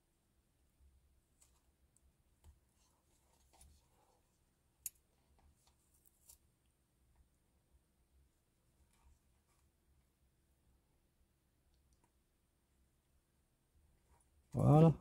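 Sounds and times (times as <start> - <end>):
light rustling of fabric: 1.3 - 7.3.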